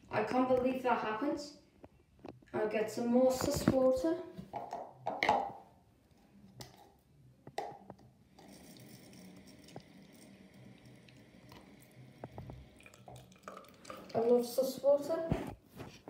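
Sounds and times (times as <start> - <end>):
faint hiss with high whine: 8.2 - 14.9.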